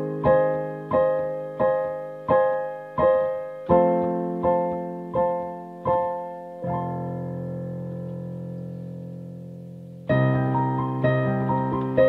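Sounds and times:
piano chord held: 0.0s - 12.0s.

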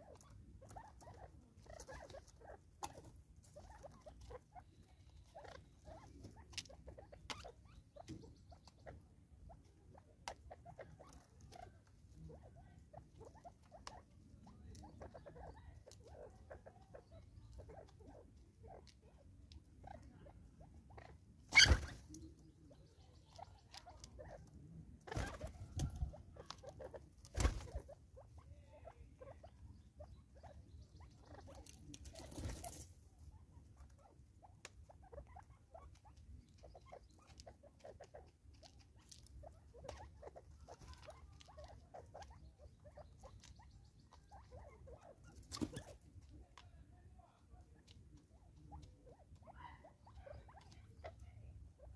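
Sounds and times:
bird pecking and scratching on wood: 35.9s - 42.3s.

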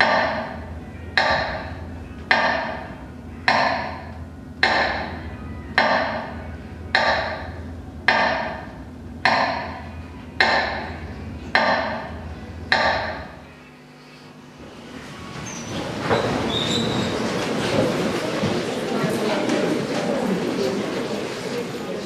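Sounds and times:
metronome ticking: 6.9s - 13.4s.

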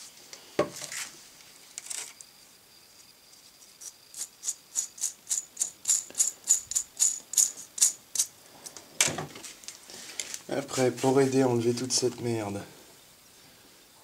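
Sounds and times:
ball bearing rattling rasp: 4.2s - 8.3s.

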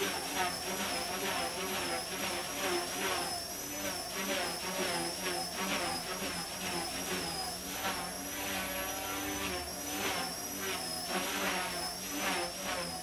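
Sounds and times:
high-pitched motor whine: 0.0s - 13.0s.

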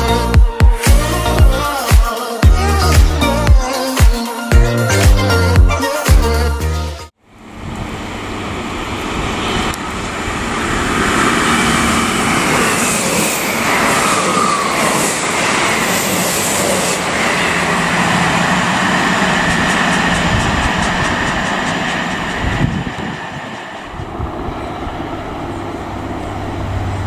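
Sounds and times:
diesel train passing: 7.2s - 27.0s.

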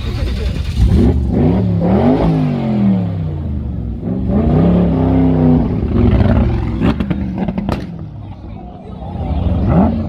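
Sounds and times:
car engine revving hard: 0.8s - 8.0s, 9.5s - 10.0s.

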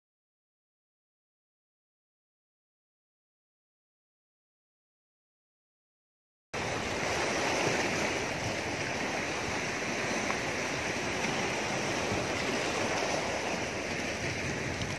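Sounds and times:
sea surf washing over rocks: 6.6s - 14.9s.

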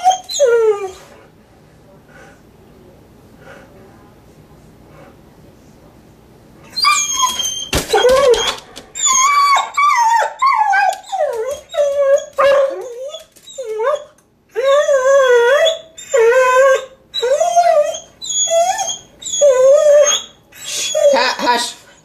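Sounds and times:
dog whining and howling: 0.0s - 1.1s, 6.7s - 21.4s.

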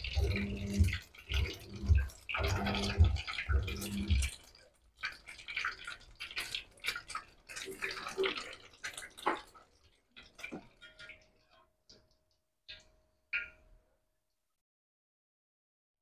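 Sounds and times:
patties sizzling in hot oil: 0.0s - 12.0s.

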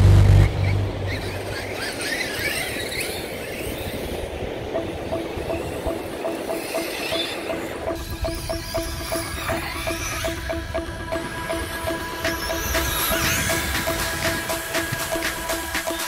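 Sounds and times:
rc truck motors whining: 0.0s - 16.0s
rushing noise: 0.0s - 16.0s
pulsing tone: 4.7s - 16.0s.

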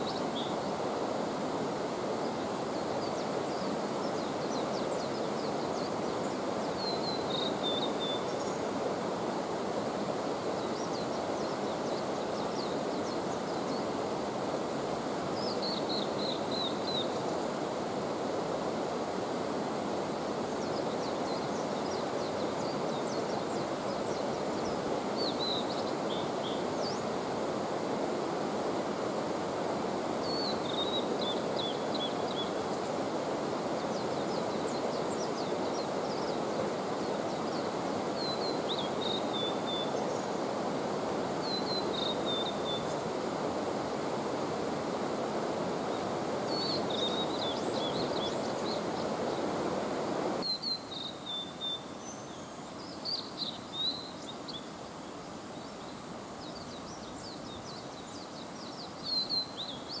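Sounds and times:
steady rushing noise: 16.1s - 50.4s.

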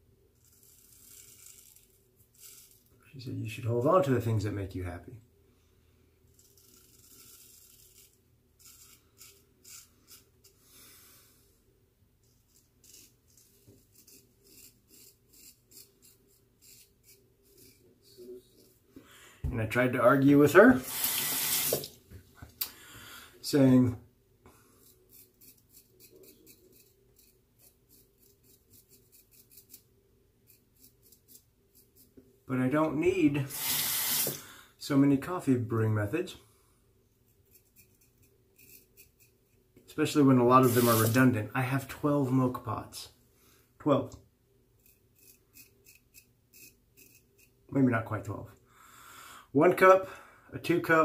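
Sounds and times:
razor scraping stubble: 0.4s - 3.0s, 6.3s - 10.6s, 12.2s - 18.8s, 24.8s - 32.1s, 37.3s - 39.6s, 40.4s - 41.3s, 44.8s - 47.6s.

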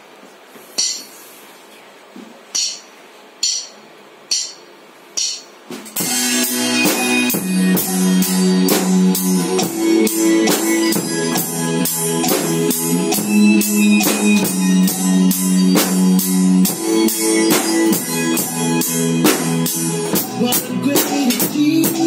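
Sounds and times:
cymbal strikes: 0.8s - 1.2s, 2.5s - 11.1s
drums playing a steady beat: 0.8s - 1.2s, 2.4s - 22.0s
backing track with guitar: 6.0s - 22.0s.

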